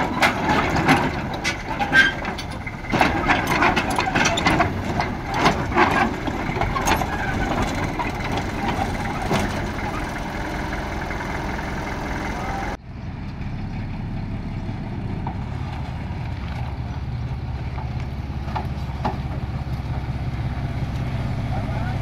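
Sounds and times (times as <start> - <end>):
diesel construction machinery running: 0.0 - 22.0.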